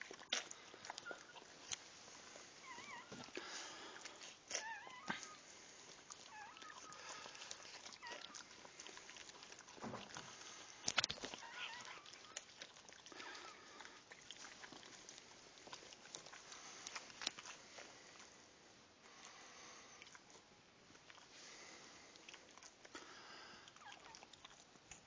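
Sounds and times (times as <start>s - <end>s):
dog licking puppy: 0.0s - 18.4s, 20.0s - 25.0s
puppy squeaking: 2.6s - 3.3s, 4.6s - 5.4s, 6.3s - 7.0s, 11.2s - 12.6s.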